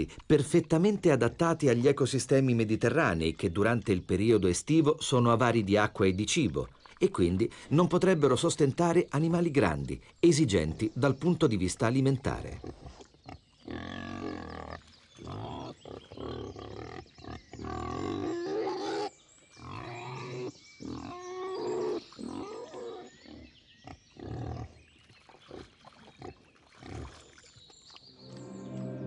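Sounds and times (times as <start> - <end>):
wild boars grunting: 12.2 - 27.2.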